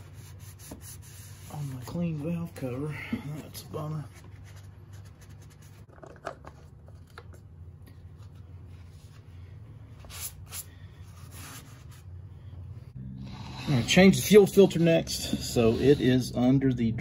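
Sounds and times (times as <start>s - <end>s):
low hum: 10.7s - 17.0s.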